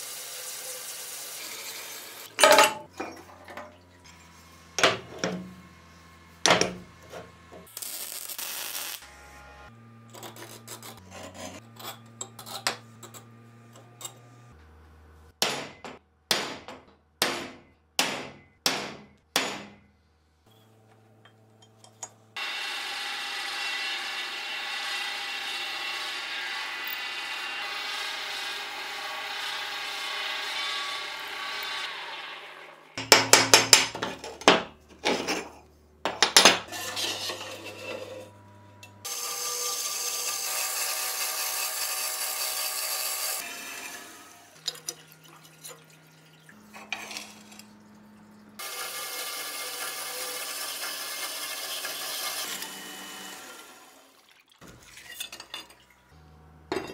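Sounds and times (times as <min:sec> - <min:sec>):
band saw cutting metal: 0:00.0 - 0:02.4, 0:04.0 - 0:15.2, 0:20.5 - 0:33.0, 0:36.7 - 0:54.1
drill press drilling steel: 0:22.4 - 0:32.6.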